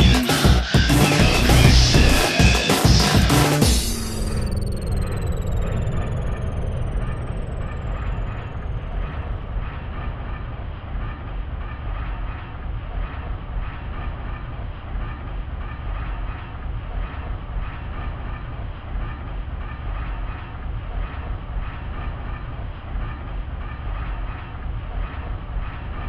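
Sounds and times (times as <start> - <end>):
noisy electronic synth music: 0.0 - 11.5.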